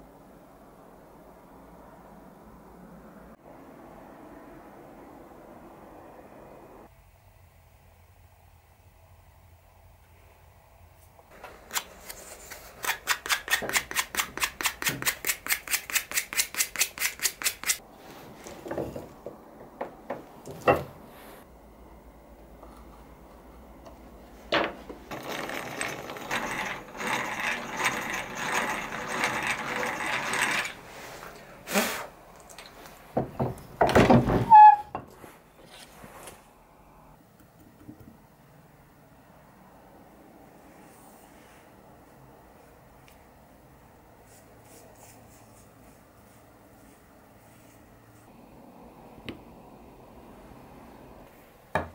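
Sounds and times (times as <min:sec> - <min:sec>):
rough woodworking noise: 0:24.4 - 0:32.1.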